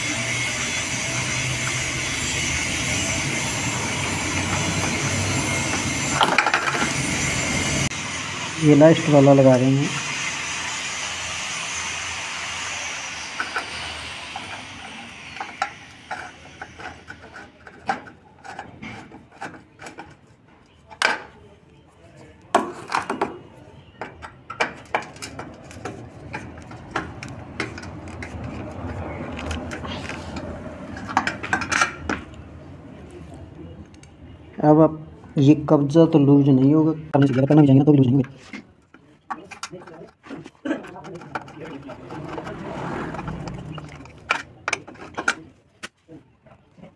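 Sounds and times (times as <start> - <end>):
metal clicks and scrapes: 14.4 - 20.4, 24.1 - 32.1, 38.2 - 46.0.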